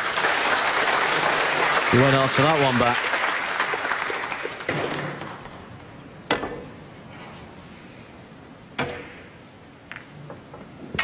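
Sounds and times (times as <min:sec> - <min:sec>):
applause: 0:00.0 - 0:05.4.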